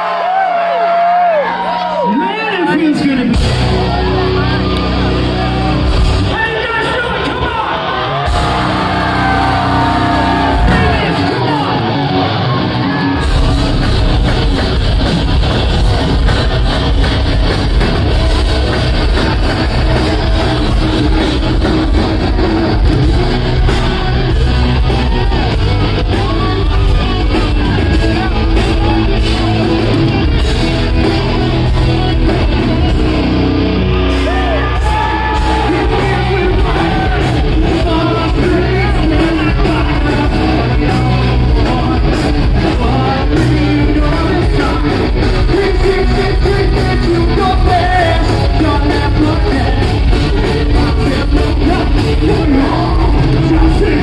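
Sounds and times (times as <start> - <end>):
bass: 0.0 - 54.0
drums: 0.0 - 54.0
distorted electric guitars: 2.7 - 54.0
person singing: 34.3 - 54.0.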